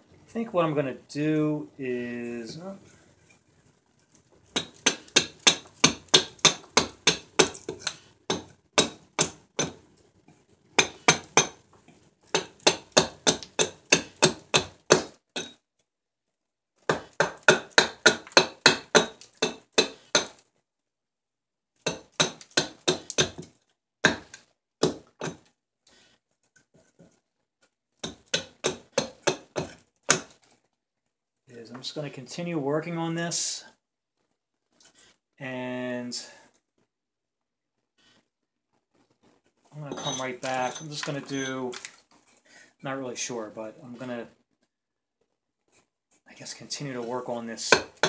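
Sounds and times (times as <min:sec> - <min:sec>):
hatchet chopping wood: 0:04.6 - 0:09.8, 0:10.8 - 0:11.6, 0:12.3 - 0:15.5, 0:16.9 - 0:20.4, 0:21.8 - 0:25.4, 0:28.0 - 0:30.4, 0:47.7 - 0:48.0.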